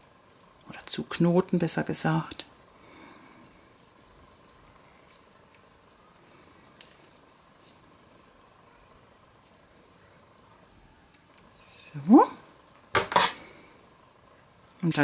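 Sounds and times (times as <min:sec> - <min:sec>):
fingers knotting thread rustle: 0:03.0 - 0:13.3.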